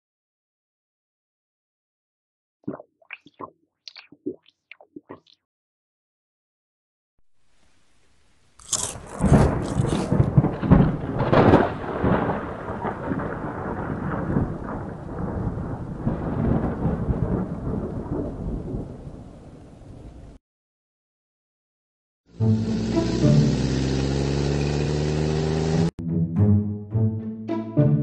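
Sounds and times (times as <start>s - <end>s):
thunder cracks and rumbling: 9.1s - 20.4s
steady rain: 9.2s - 20.4s.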